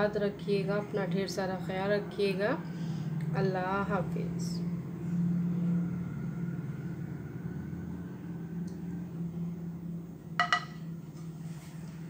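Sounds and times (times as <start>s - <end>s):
low kitchen hum: 0.0s - 12.0s
plate clinking on counter: 10.4s - 10.9s.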